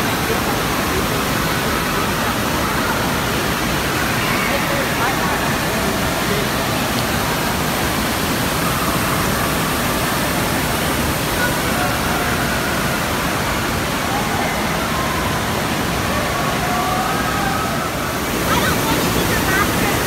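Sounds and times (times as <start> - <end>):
rushing water: 0.0 - 20.0
distant voices and shouts: 0.2 - 6.8, 11.3 - 20.0.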